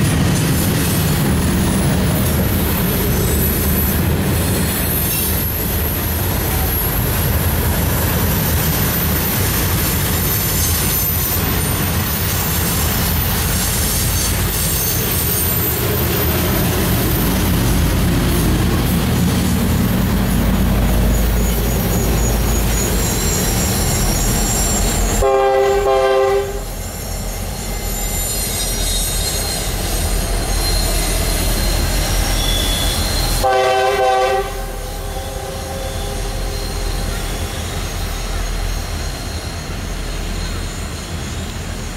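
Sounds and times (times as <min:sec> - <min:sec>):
freight cars rumbling: 0:00.0 - 0:41.9
train wheel squeal: 0:00.0 - 0:41.9
locomotive horn blasts: 0:25.2 - 0:26.7, 0:33.4 - 0:36.1.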